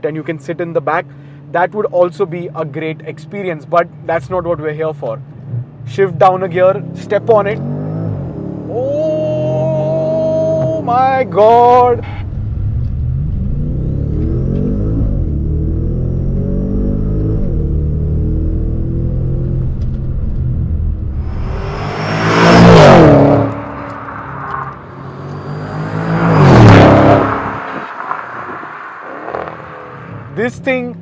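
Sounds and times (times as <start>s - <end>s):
car engine at full throttle: 6.7s - 31.0s
car rushing past: 11.9s - 30.4s.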